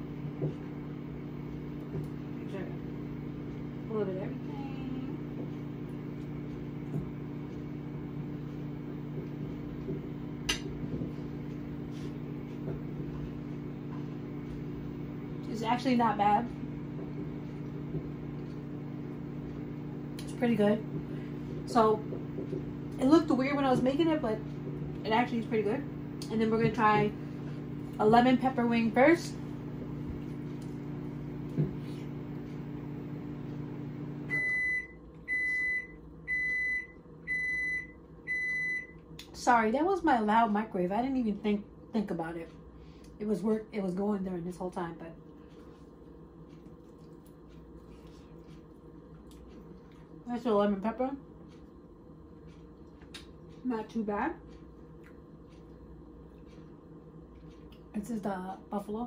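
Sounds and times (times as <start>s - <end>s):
microwave oven humming: 0.0s - 59.0s
microwave beeping: 4.8s - 39.1s.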